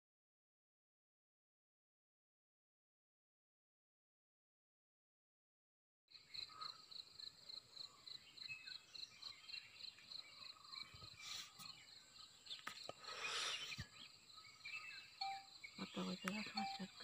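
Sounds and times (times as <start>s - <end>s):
insects chirping: 6.1s - 17.0s.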